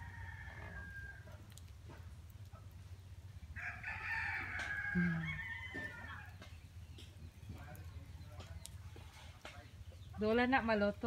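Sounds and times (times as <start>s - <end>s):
rooster crowing: 0.0s - 1.3s, 3.6s - 6.3s.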